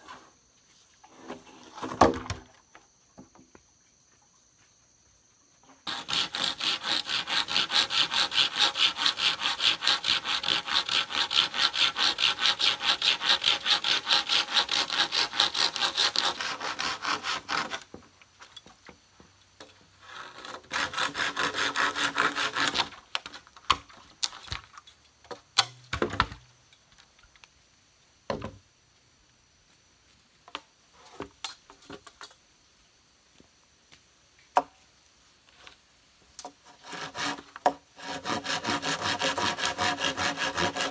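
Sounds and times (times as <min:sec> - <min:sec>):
hand saw cutting bamboo: 0:05.8 - 0:17.9, 0:20.0 - 0:23.8, 0:36.5 - 0:40.9.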